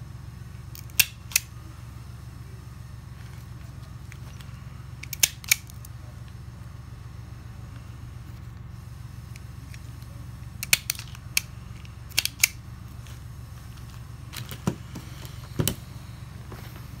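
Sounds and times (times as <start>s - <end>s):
wire stripper clicking: 5.0s - 5.9s, 10.6s - 12.6s.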